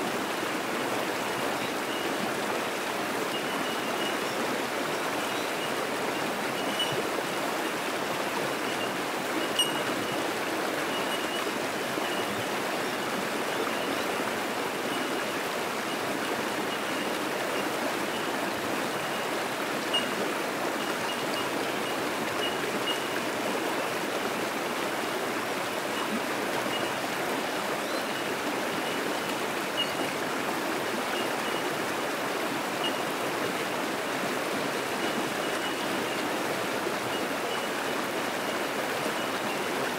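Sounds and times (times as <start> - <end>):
creek water rushing: 0.0 - 39.9
bellbird pings: 6.6 - 7.0, 8.8 - 10.2, 19.9 - 20.1.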